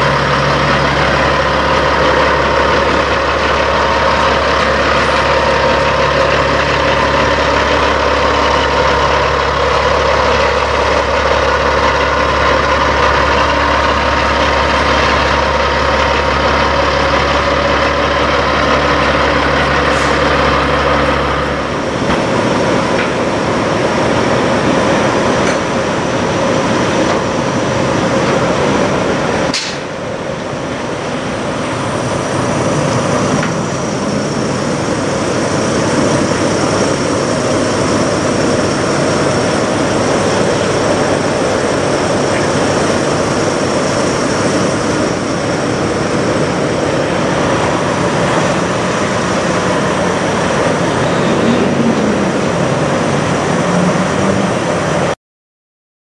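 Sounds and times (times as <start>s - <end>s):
diesel truck engines idling: 0.0s - 55.2s
short sharp click: 29.5s - 29.9s.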